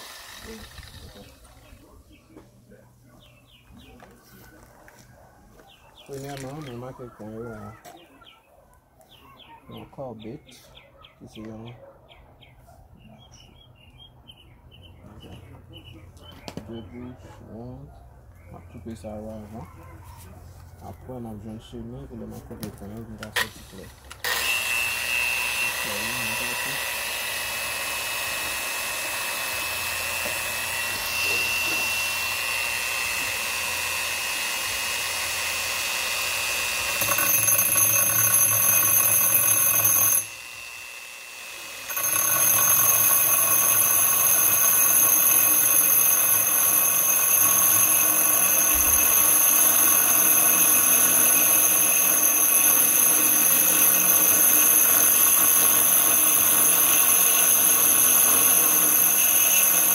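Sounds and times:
angle grinder boring into stone: 0.0s - 2.0s, 23.2s - 59.9s.

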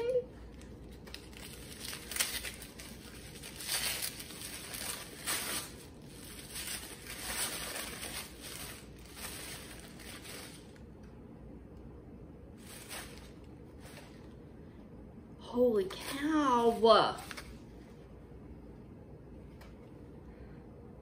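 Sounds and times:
packaging tearing and crinkling: 0.6s - 10.8s.

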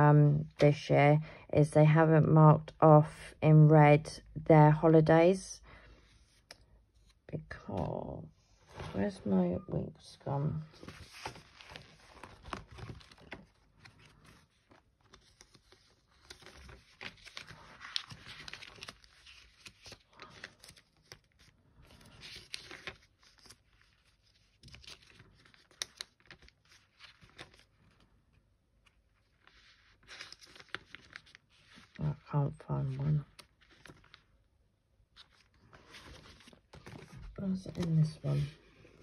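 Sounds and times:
paper pages flipping and rustling: 10.7s - 28.2s, 28.8s - 32.1s, 32.8s - 34.4s, 35.1s - 39.0s
paper clicks: 24.6s - 26.5s.

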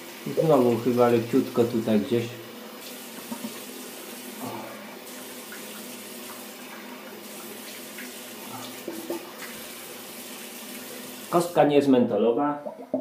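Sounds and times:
tap running into sink: 3.0s - 3.8s, 7.2s - 9.7s.

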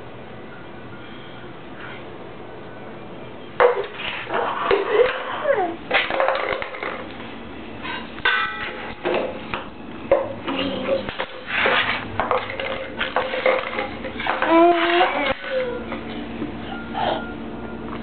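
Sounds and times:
kitchenware clattering on tile floor: 3.6s - 7.2s, 7.9s - 16.1s
baby squealing: 14.4s - 15.9s.

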